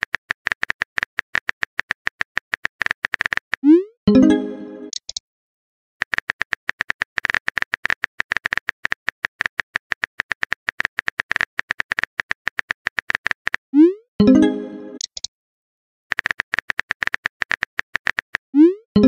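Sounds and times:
smartphone keyboard clicks: 0.0 - 3.6, 6.0 - 13.6, 16.1 - 18.4.

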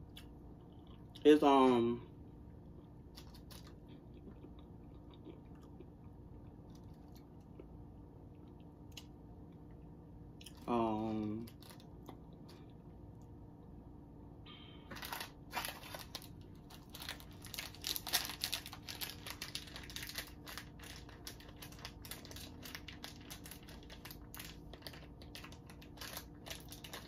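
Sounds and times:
plastic snack packet crinkling: 3.1 - 4.4, 10.4 - 12.6, 14.9 - 27.0.

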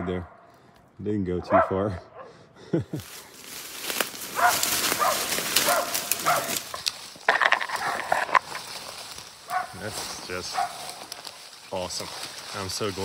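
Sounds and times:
dogs barking: 1.4 - 2.5, 4.3 - 8.4, 9.4 - 11.2.

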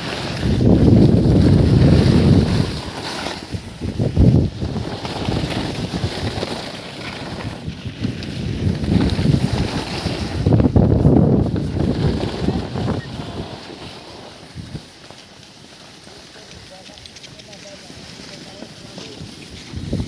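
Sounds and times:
wind buffeting microphone: 0.0 - 6.6, 7.2 - 15.0, 18.5 - 20.0.

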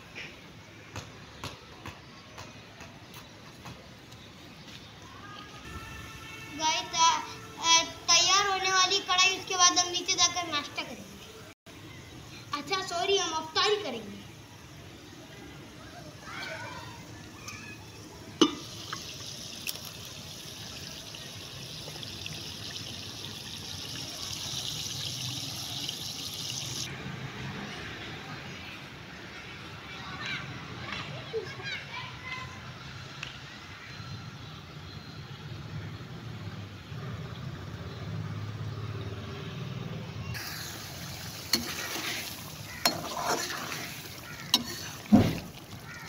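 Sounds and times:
gravy sizzling and bubbling: 12.6 - 26.9, 40.3 - 46.0
metal spoon clanking on pot: 42.8 - 43.7, 44.6 - 44.9.

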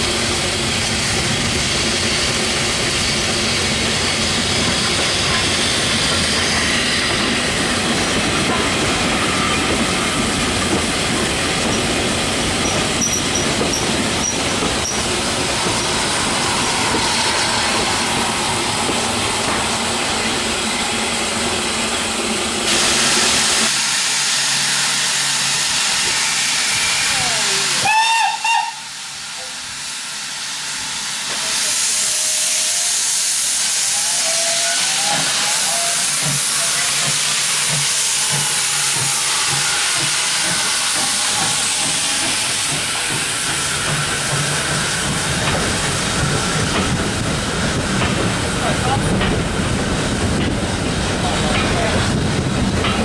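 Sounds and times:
locomotive steam hissing: 0.0 - 53.0
steam whistle: 26.5 - 29.0, 33.7 - 36.9.

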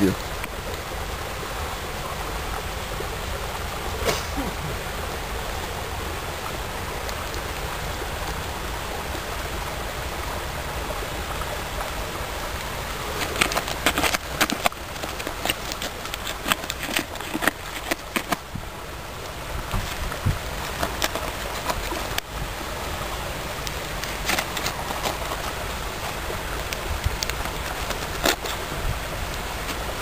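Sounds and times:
steady rushing noise: 0.0 - 30.0
trowel scraping in soil: 13.0 - 18.4, 19.7 - 22.2, 23.7 - 26.7, 27.3 - 28.7.

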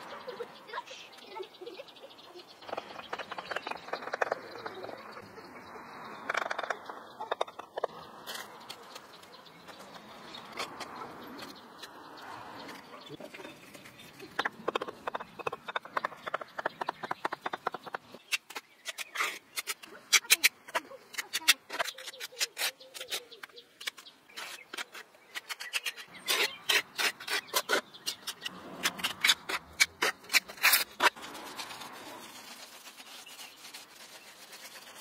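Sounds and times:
birds calling: 0.0 - 35.0
trowel scraping mortar: 13.3 - 35.0.

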